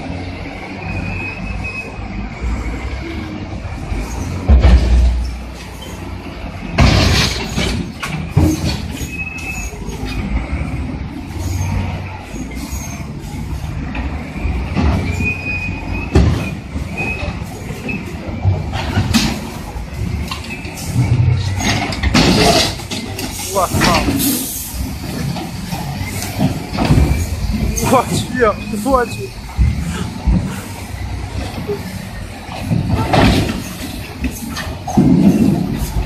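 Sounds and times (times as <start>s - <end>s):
diesel engines running: 0.0s - 36.0s
loud metal crashes: 6.8s - 9.0s, 21.7s - 23.0s
metal scraping squeals: 8.5s - 10.3s, 11.3s - 13.1s, 14.3s - 18.2s, 23.4s - 31.9s.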